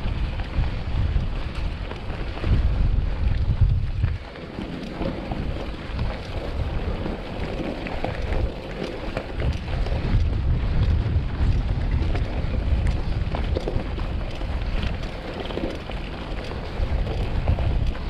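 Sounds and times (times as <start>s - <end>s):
bike clicks and rattles: 0.0s - 18.0s
bike tyres crunching on gravel: 0.0s - 18.0s
wind buffeting microphone: 0.0s - 18.0s.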